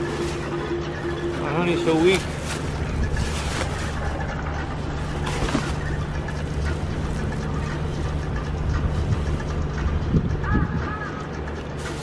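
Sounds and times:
plastic bags rustling: 0:00.0 - 0:08.2
steady low hum: 0:00.0 - 0:12.0.

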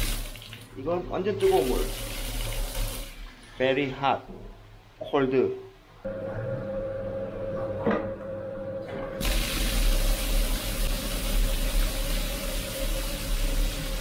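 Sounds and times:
water gushing into tub: 0:00.0 - 0:00.8, 0:01.4 - 0:03.3, 0:09.2 - 0:14.0.

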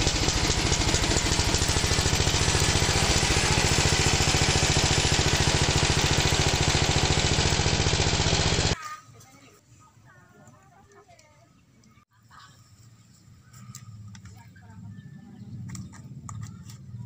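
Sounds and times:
small engine chugging: 0:00.0 - 0:08.8.

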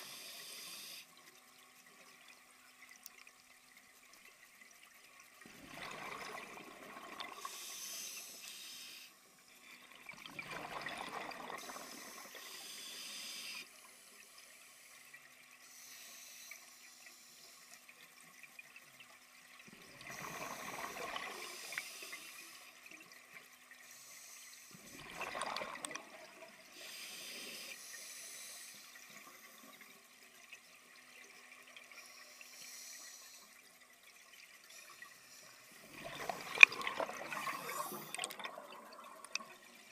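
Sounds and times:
regulator hiss on inhale: 0:00.0 - 0:01.1, 0:07.4 - 0:09.8, 0:11.6 - 0:14.9, 0:15.6 - 0:17.9, 0:20.1 - 0:22.8, 0:23.8 - 0:25.0, 0:26.7 - 0:29.9, 0:32.0 - 0:33.6, 0:34.7 - 0:35.8
bubbles rushing on exhale: 0:05.5 - 0:07.5, 0:10.2 - 0:12.0, 0:24.9 - 0:26.4, 0:35.8 - 0:39.6.

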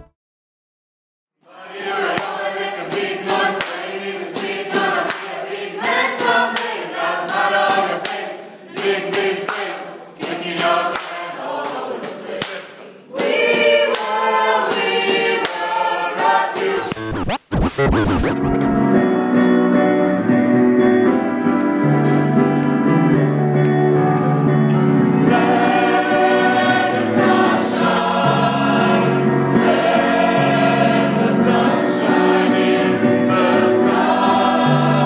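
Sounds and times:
choir singing: 0:01.4 - 0:17.1, 0:23.9 - 0:35.0
glitchy sweep: 0:16.8 - 0:18.9.

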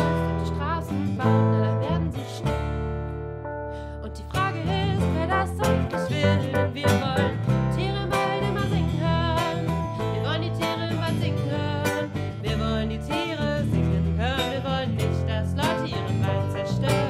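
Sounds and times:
acoustic guitar: 0:00.0 - 0:17.0
piano: 0:00.0 - 0:17.0
children's song: 0:04.3 - 0:13.8.

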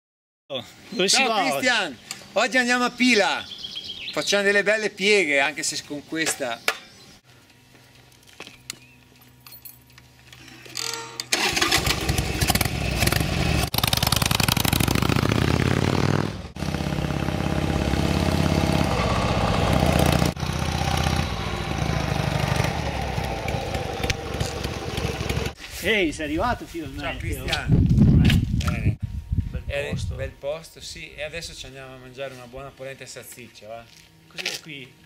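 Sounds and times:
motorcycle engine running and revving: 0:11.8 - 0:25.6.

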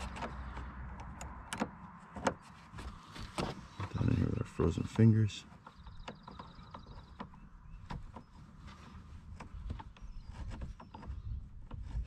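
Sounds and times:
wind rumble on microphone: 0:09.4 - 0:12.0.

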